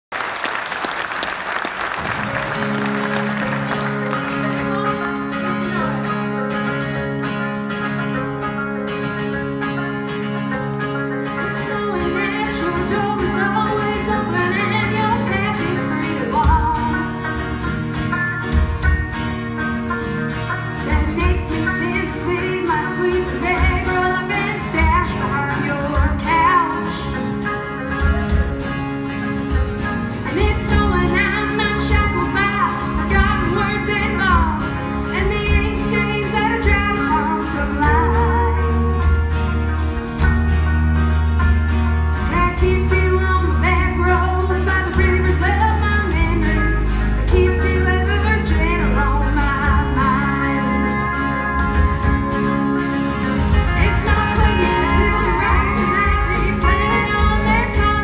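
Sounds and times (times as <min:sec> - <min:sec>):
applause: 0:00.0 - 0:05.5
country band playing: 0:00.1 - 0:58.0
woman singing: 0:11.4 - 0:17.4, 0:20.8 - 0:27.4, 0:30.2 - 0:39.3, 0:42.2 - 0:52.2, 0:53.5 - 0:58.0
drums and bass beat: 0:11.5 - 0:58.0.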